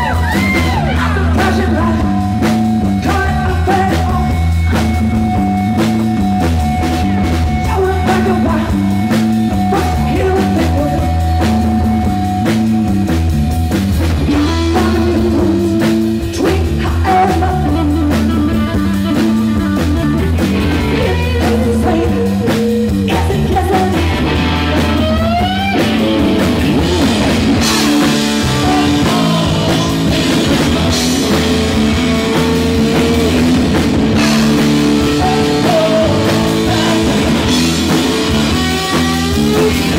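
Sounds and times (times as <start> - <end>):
drum kit: 0.0 - 39.9
electric bass: 0.0 - 39.9
electric guitar: 0.0 - 39.9
rising guitar glide: 17.1 - 39.9.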